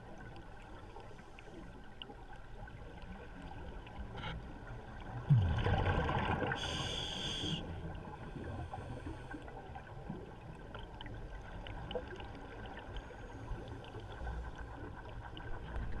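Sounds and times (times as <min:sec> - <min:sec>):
low underwater rumble: 0:00.0 - 0:07.0
exhaled bubbles rushing: 0:05.2 - 0:06.6
regulator hiss: 0:06.6 - 0:07.6.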